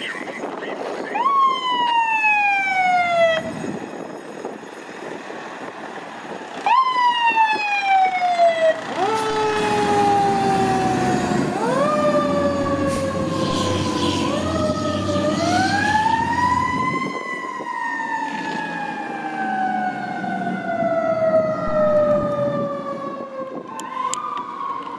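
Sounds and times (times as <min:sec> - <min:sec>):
electronic siren: 0:06.6 - 0:24.9
mechanical siren: 0:06.6 - 0:24.9.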